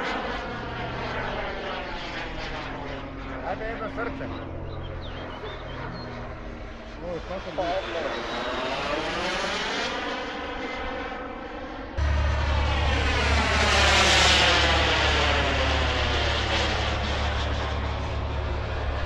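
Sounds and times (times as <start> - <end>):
jet turbine whine and rush: 0.0 - 19.0
low rumble: 12.0 - 19.0.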